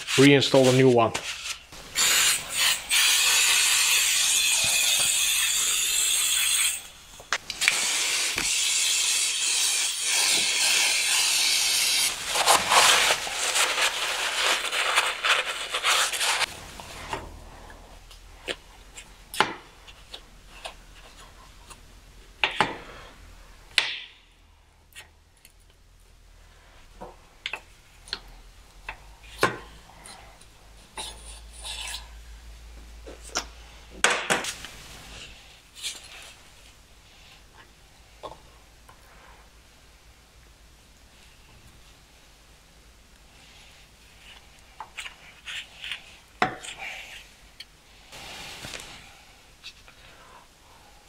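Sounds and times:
glove scrubbing metal: 7.9s - 17.1s.

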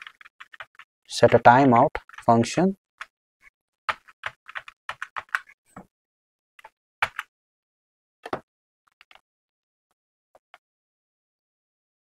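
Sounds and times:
keyboard key clicks: 8.2s - 8.4s.

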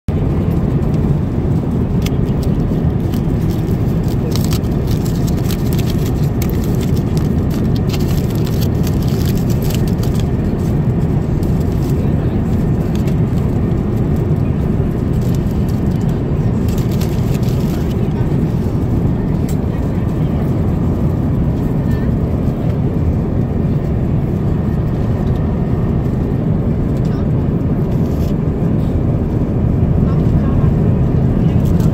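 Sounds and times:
airliner cabin noise: 0.1s - 31.9s
foil crinkling: 2.4s - 10.3s, 16.7s - 18.0s.

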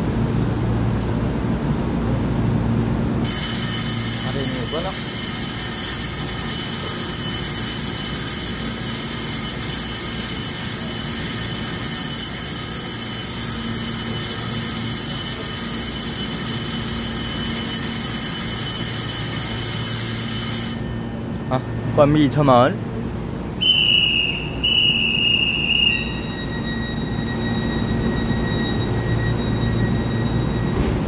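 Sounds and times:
platform departure bell ringing: 3.1s - 23.6s, 24.2s - 31.0s.

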